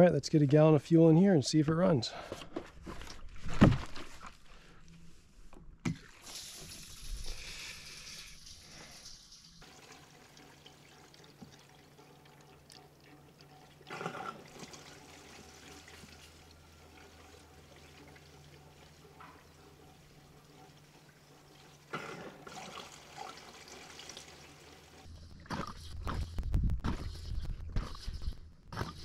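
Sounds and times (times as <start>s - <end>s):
fuel pouring into tank: 6.0s - 25.1s.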